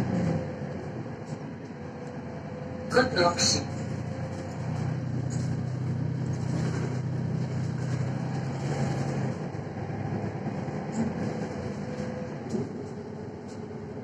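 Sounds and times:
bus engine hum: 0:00.0 - 0:14.0
road noise: 0:00.0 - 0:14.0.

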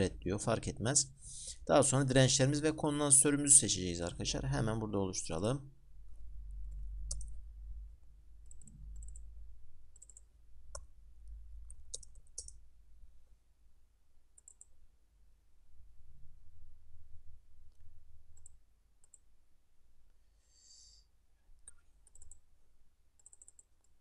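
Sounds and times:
keyboard and mouse clicks: 0:07.0 - 0:07.4, 0:08.4 - 0:09.3, 0:10.0 - 0:10.9, 0:11.6 - 0:12.6, 0:14.4 - 0:14.7, 0:21.6 - 0:22.4, 0:23.2 - 0:24.0.

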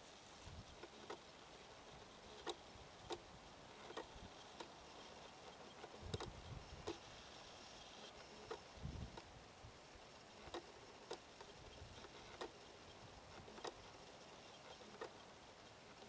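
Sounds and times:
faint hiss: 0:00.0 - 0:16.0
soft clicks: 0:02.4 - 0:07.0.

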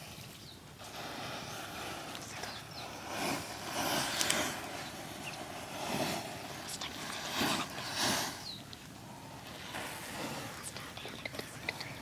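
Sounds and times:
fire crackles: 0:00.0 - 0:12.0
flame hissing: 0:00.8 - 0:08.5.

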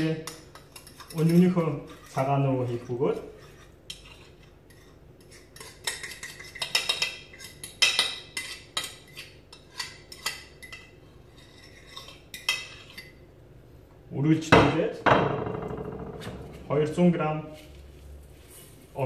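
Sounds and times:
utensil scraping and clinking dish: 0:00.0 - 0:13.2.

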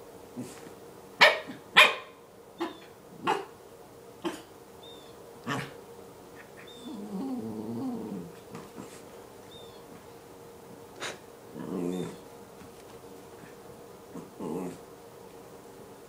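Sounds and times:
dog barking: 0:01.2 - 0:03.5, 0:04.2 - 0:04.5
dog growling: 0:05.4 - 0:05.8, 0:06.4 - 0:09.1, 0:11.0 - 0:12.3, 0:13.4 - 0:14.9.

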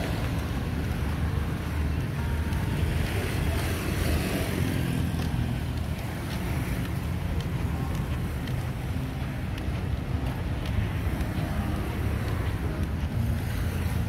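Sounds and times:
city traffic rumble: 0:00.0 - 0:14.0.

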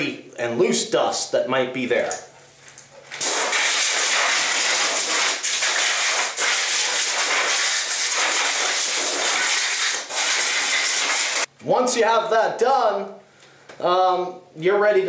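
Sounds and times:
compressed-air blow gun hissing: 0:03.2 - 0:11.5.

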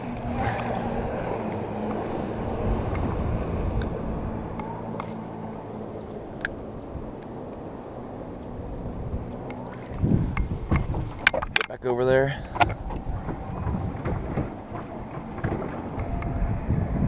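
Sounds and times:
wind rushing: 0:00.0 - 0:11.6, 0:12.3 - 0:17.0
distant motorboat engine: 0:00.0 - 0:17.0.

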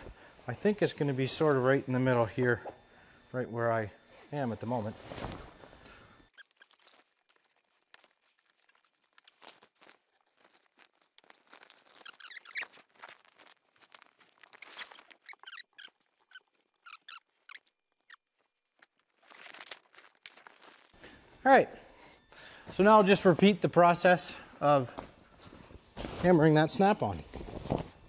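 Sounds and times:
canvas rustling: 0:04.1 - 0:16.8, 0:18.3 - 0:21.4, 0:22.6 - 0:28.0
short high squeaks: 0:06.2 - 0:07.4, 0:11.3 - 0:18.3.

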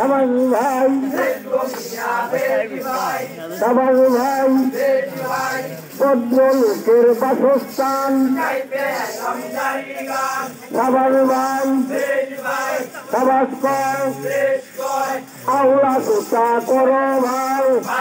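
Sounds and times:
men singing in chanting style: 0:00.0 - 0:18.0.

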